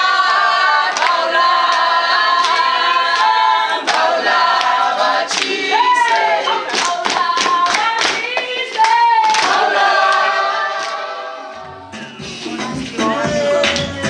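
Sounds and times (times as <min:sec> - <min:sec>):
group singing unaccompanied: 0:00.0 - 0:14.0
hand clapping: 0:00.8 - 0:11.0, 0:13.6 - 0:14.0.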